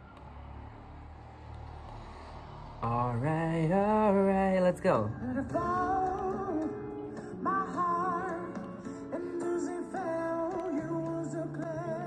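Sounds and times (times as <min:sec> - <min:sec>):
low hum: 0:00.0 - 0:06.3.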